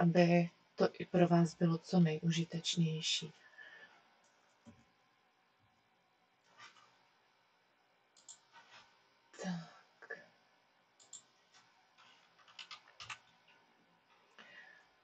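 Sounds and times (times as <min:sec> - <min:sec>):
soft breath noise: 0:03.4 - 0:04.2, 0:14.2 - 0:15.0.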